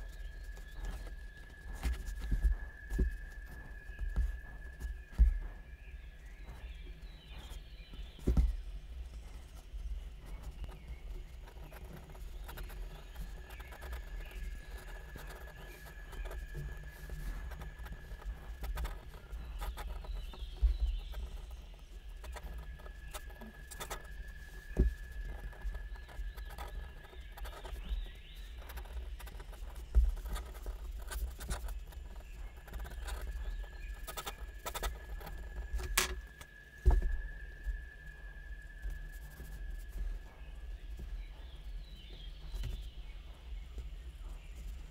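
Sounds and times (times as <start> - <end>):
pen nib scratching on paper: 10.3 - 21.6, 22.2 - 24.1, 25.3 - 36.1.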